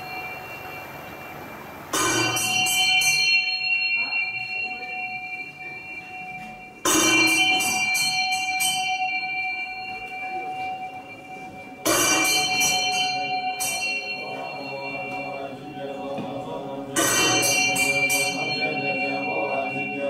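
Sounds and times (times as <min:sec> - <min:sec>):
prayer wheel bell ringing: 0:00.0 - 0:20.0.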